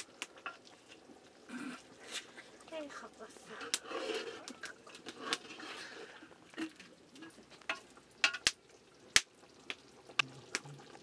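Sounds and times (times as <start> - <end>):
ladle scraping metal pot: 3.5 - 6.9.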